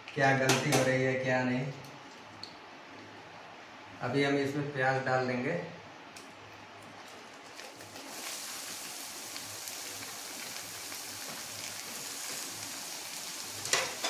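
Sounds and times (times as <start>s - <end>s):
onions sizzling in hot oil: 7.3s - 14.0s.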